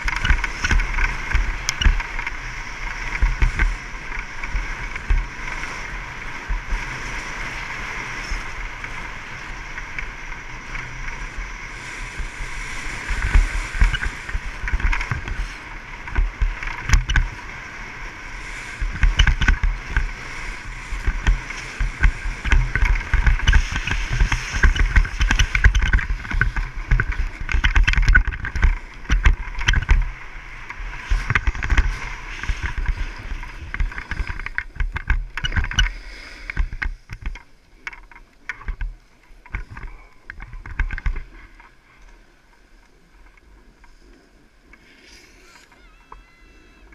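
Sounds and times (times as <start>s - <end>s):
low wind buffeting: 0.0s - 35.9s
wind rushing over microphone: 0.0s - 38.0s
skis sliding over packed snow: 0.0s - 46.9s.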